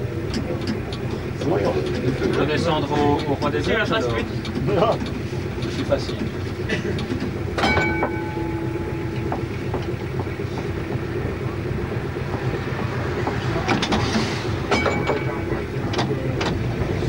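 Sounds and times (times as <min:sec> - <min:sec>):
tram wheels rumbling on rail: 0:00.0 - 0:17.0
clicks and knocks from track: 0:00.2 - 0:17.0
short ringing tone: 0:07.6 - 0:09.5.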